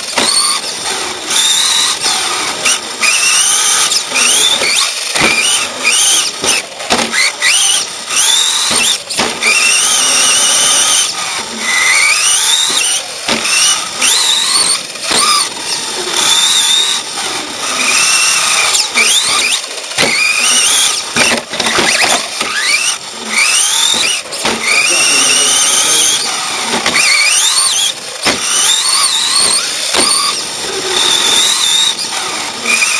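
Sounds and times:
electric motor whining: 0.0 - 32.9
chassis knocks over bumps: 3.8 - 7.8, 8.4 - 9.9, 11.7 - 15.6, 19.0 - 24.8, 28.2 - 30.4.

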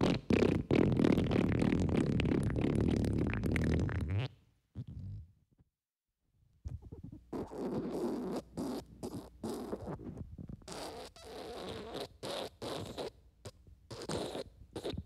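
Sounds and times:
wet fart sound effect: 0.0 - 5.3, 6.8 - 13.1.

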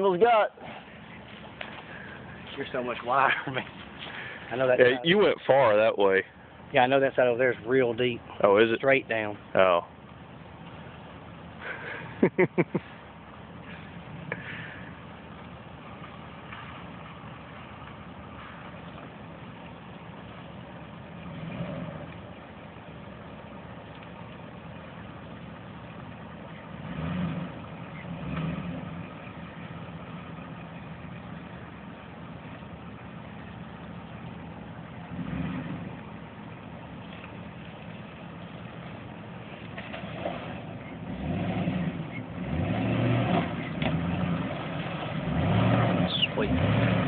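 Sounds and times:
truck engine revving: 20.9 - 23.5, 26.1 - 37.4, 38.1 - 47.0.

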